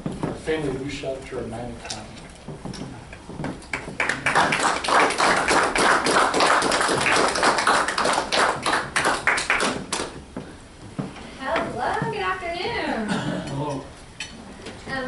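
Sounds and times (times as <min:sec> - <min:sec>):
people applauding: 0:03.6 - 0:10.2.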